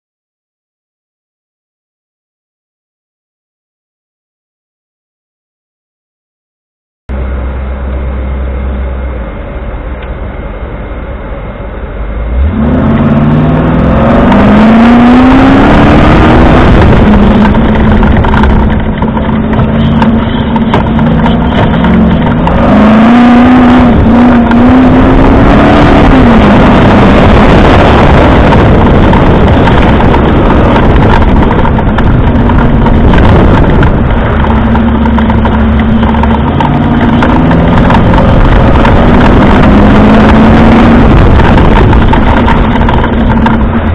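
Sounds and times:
loud constant rush of noise: 7.1 - 43.9
racing car engine revving: 12.1 - 43.9.

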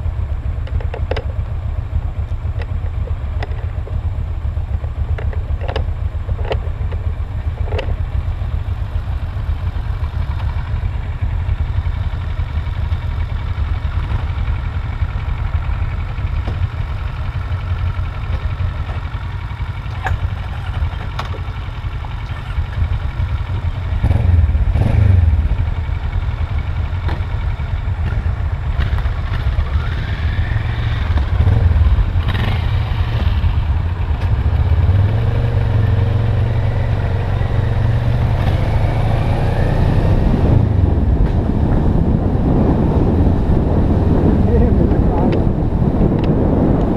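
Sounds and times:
motorcycle engine accelerating: 0.0 - 46.9
motorcycle passing: 19.5 - 46.9
wind rumble on microphone: 27.2 - 46.9.

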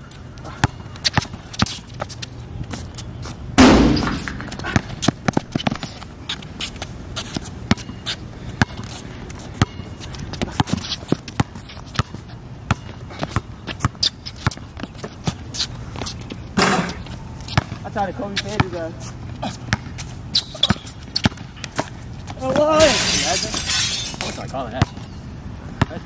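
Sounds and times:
ball striking basketball hoop: 3.6 - 4.4.

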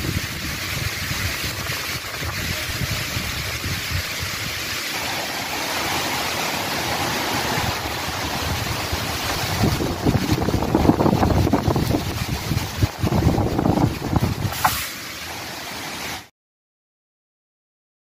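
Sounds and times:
wind buffeting microphone: 0.0 - 4.8, 5.4 - 14.7
heavy rain: 0.0 - 16.3
wind rushing through trees: 0.0 - 16.3.

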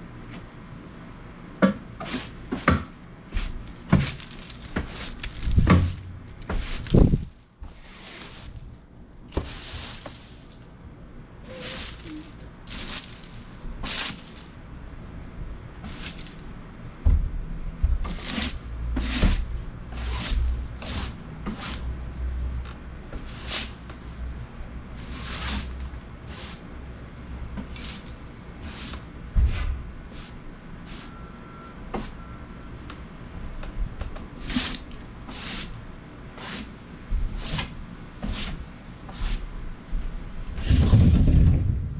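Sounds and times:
broom sweeping wooden boards: 2.0 - 10.8, 11.4 - 14.7, 15.8 - 16.5, 18.0 - 22.0, 23.1 - 26.7, 27.6 - 31.1, 31.9 - 32.2, 34.4 - 39.5
low rumble: 40.5 - 41.9.

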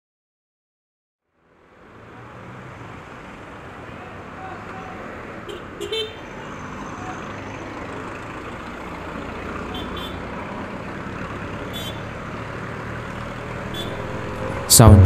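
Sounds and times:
road and wind noise: 1.3 - 15.0
short high chirps: 13.7 - 15.0.

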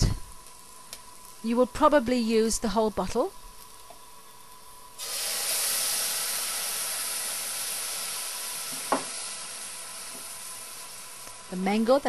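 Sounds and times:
onions frying sizzle: 0.3 - 12.0
cream hissing in a hot pan: 4.3 - 12.0.

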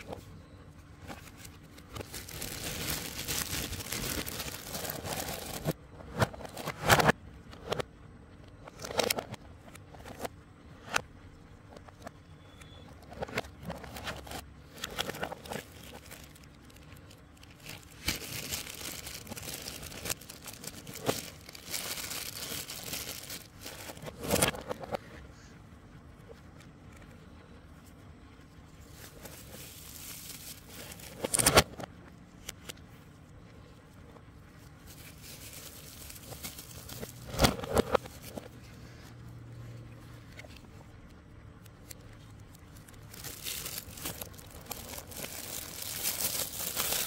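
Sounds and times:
plastic packaging crinkling: 0.9 - 5.8, 13.0 - 24.8, 28.8 - 31.8, 34.7 - 38.6, 41.8 - 47.0.

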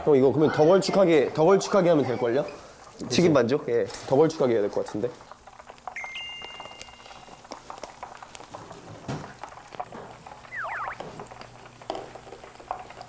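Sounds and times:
batter frying: 0.0 - 13.0
cooking clicks and crackles: 0.0 - 13.0
sliding whistle: 10.5 - 11.0.

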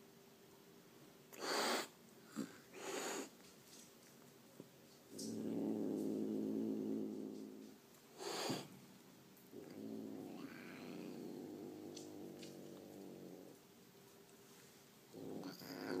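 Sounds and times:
cat hissing: 1.3 - 3.3, 8.2 - 8.7
cat growling: 5.1 - 8.7, 9.5 - 13.6, 15.1 - 16.0.

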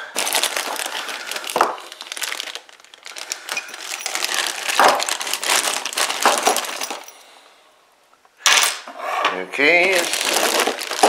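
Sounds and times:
packaging crinkling and rustling: 0.0 - 7.2, 9.6 - 11.0.

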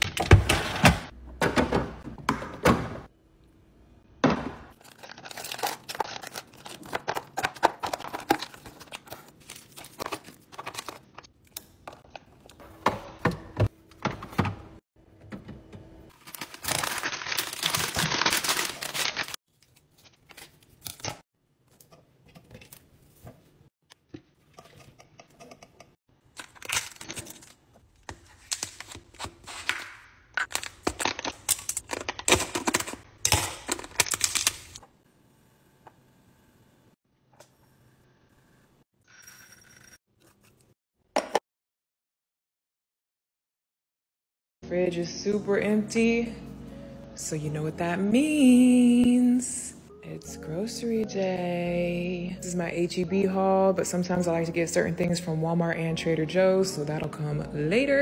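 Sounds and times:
packaging crinkling and tearing: 4.8 - 11.1, 16.1 - 21.2, 26.3 - 34.8.

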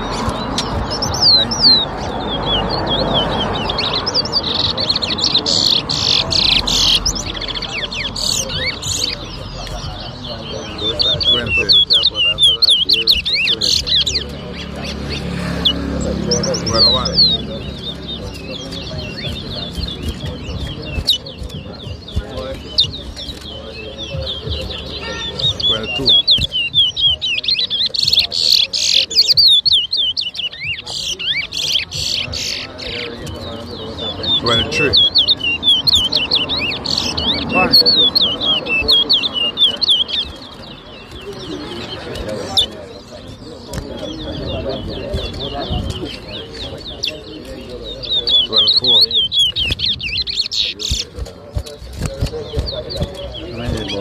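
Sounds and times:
finch singing high chirps: 0.0 - 54.0
steady background noise: 0.0 - 54.0.

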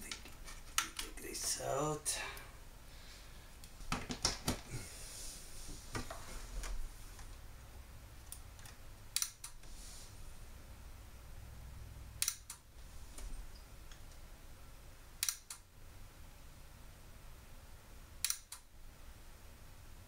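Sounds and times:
sharp clicks of connectors: 12.2 - 12.6, 15.2 - 15.6.

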